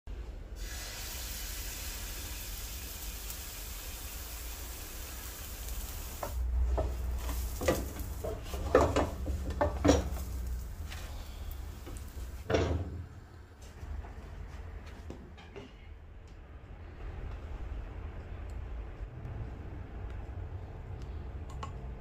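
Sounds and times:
batter sizzling in hot oil: 0.6 - 12.5
knocks and clatters: 6.2 - 10.6, 11.8 - 13.1.

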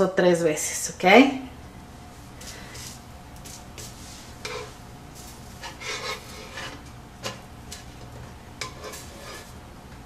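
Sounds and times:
spatula scraping griddle: 2.4 - 9.6.

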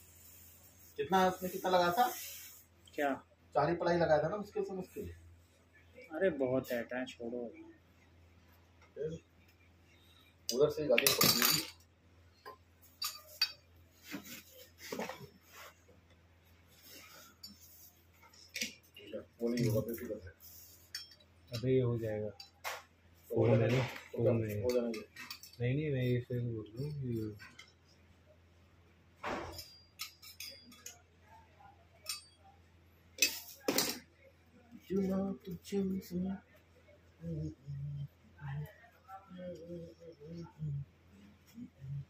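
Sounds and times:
faint steady hum: 0.0 - 42.0
metallic clinks and knocks: 29.2 - 31.0.

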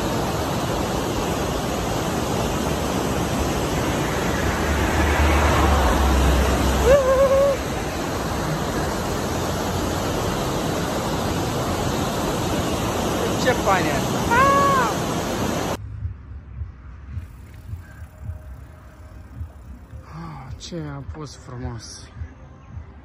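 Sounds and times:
water rushing over weir: 0.0 - 15.8.

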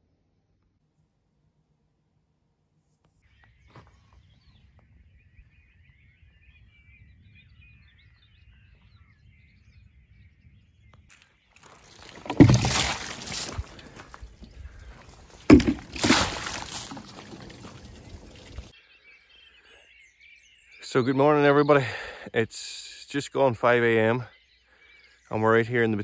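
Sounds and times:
faint birds chirping: 2.8 - 26.0
rustling thumping near microphone: 11.6 - 18.7.

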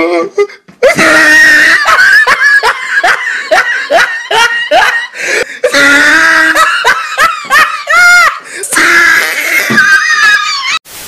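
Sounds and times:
loud human laughter: 0.8 - 10.8.

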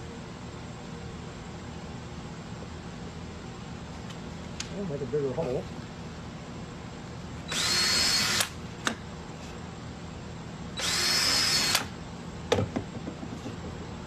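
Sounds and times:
power drill whining: 7.5 - 8.6, 10.8 - 11.9.

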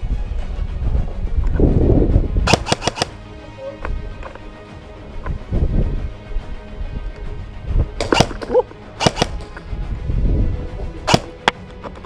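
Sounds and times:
low rumbling movement noise: 0.0 - 2.5, 3.2 - 12.0
faint music: 0.0 - 12.0
airsoft gun snaps: 2.5 - 3.2, 8.0 - 9.6, 11.1 - 11.7.

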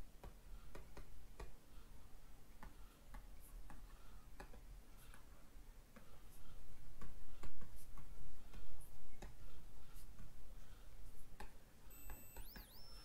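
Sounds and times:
stylus tapping on a tablet: 0.2 - 1.6, 2.6 - 5.3.

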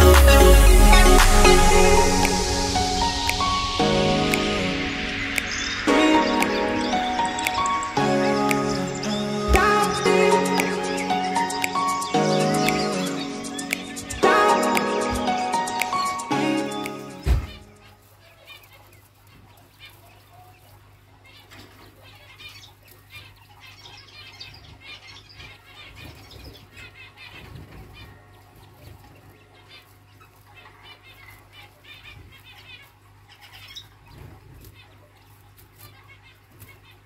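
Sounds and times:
quail rustling in straw: 29.7 - 37.0.

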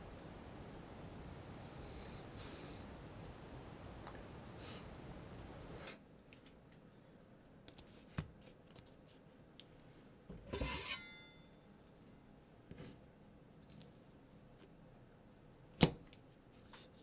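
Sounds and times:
knife scraping out of block: 10.5 - 11.2.

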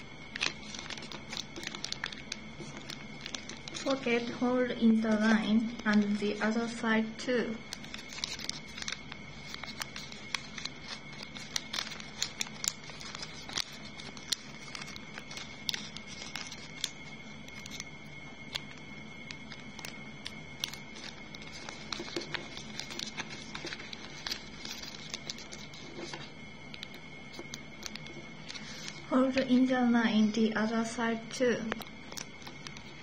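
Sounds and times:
paper folding crackles: 0.0 - 29.6, 31.2 - 33.0
faint steady hiss: 0.0 - 33.0.

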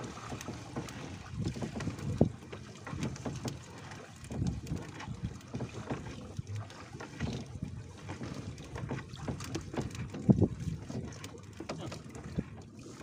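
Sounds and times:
water lapping against boat hull: 0.0 - 13.0
wind on microphone: 10.0 - 10.9.

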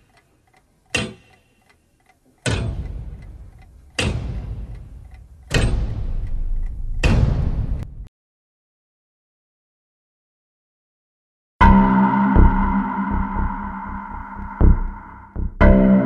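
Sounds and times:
clock ticking: 0.0 - 7.8, 11.6 - 16.0
deep ringing hits: 11.6 - 16.0.

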